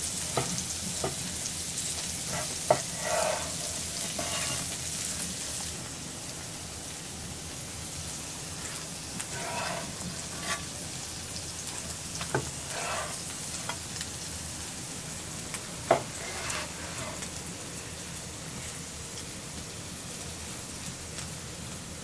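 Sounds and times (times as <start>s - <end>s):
steady sizzle: 0.0s - 22.0s
knife slicing meat: 2.3s - 4.7s, 9.3s - 10.7s, 15.9s - 17.2s.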